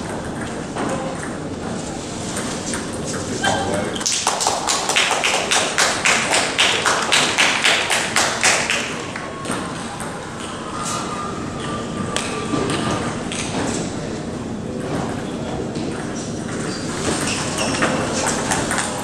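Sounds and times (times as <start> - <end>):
spectators clapping in unison: 4.0 - 9.3.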